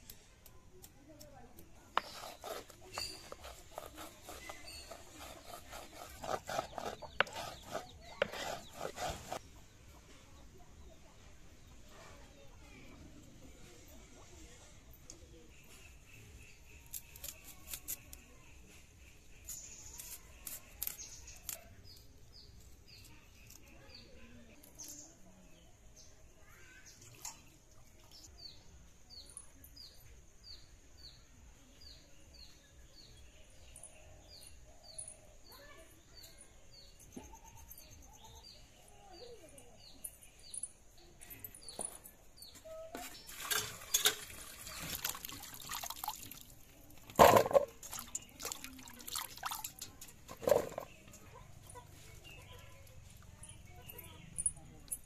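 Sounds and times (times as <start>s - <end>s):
hands splashing in bowl of water: 43.5s - 46.5s.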